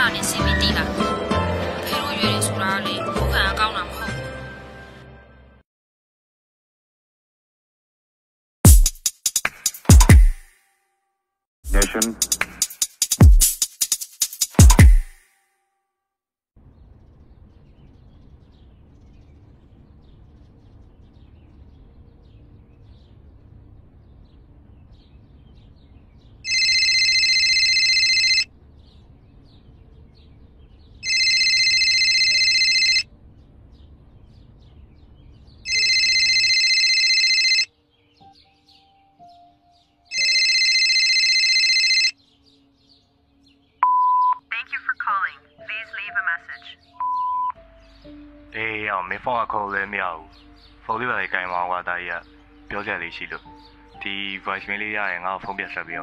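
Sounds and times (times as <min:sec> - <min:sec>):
electronic phone ringtone: 0:26.5 - 0:28.5, 0:31.0 - 0:33.1, 0:35.7 - 0:37.7, 0:40.1 - 0:42.2.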